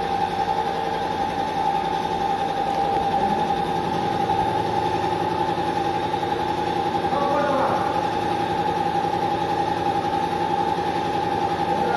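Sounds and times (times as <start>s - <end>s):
paint sprayer motor humming: 0.0s - 11.9s.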